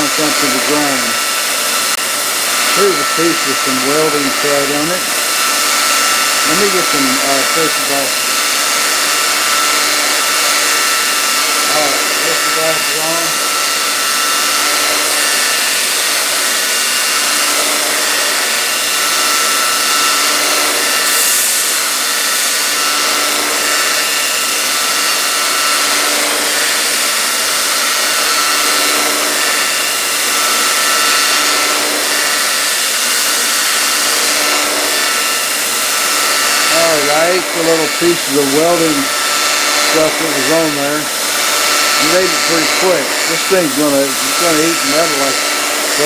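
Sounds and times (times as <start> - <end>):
belt grinder grinding steel: 0.0 - 46.0
machine running tone: 0.0 - 46.0.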